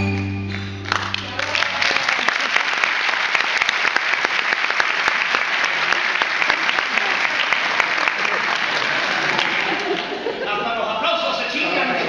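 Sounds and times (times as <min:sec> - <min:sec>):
audience applauding: 0:00.2 - 0:10.3.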